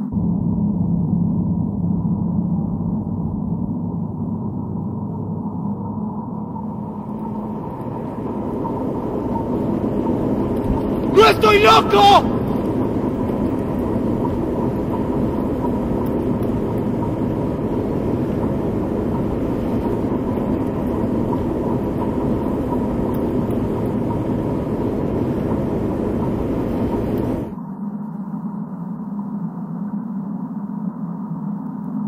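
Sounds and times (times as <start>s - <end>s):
dense rumbling drone: 0.0s - 31.6s
low hum: 0.0s - 32.0s.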